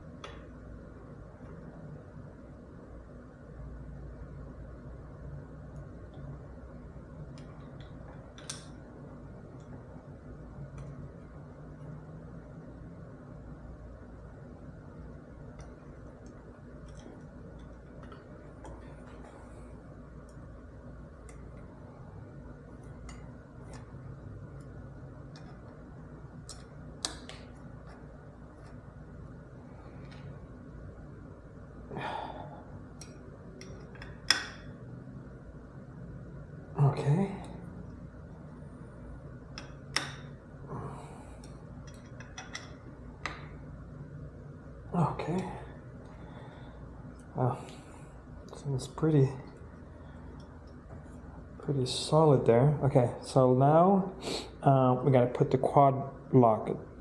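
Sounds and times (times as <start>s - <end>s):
low background hum: 0.0s - 57.0s
clicks and taps of metal parts: 33.0s - 34.7s, 39.5s - 40.3s, 41.4s - 43.5s.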